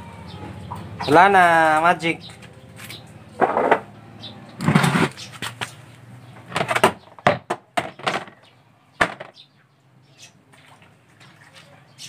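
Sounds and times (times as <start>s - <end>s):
wet laundry splashing: 10.4s - 12.0s.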